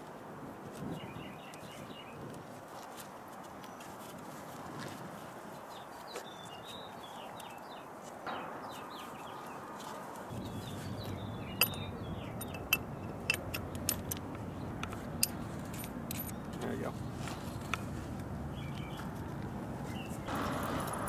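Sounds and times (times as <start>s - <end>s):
small birds chirping: 0.8s - 2.4s, 5.4s - 21.0s
low steady rumble: 10.3s - 21.0s
metallic clinks: 10.4s - 16.6s.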